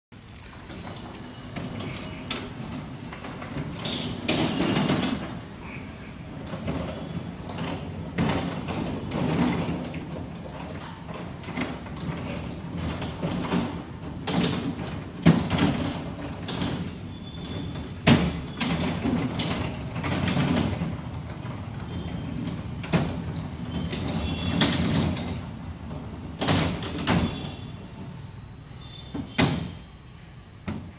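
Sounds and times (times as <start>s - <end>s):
garage door rumbling along track: 0.4s - 30.9s
garage door clunks: 6.4s - 27.6s, 29.1s - 29.8s.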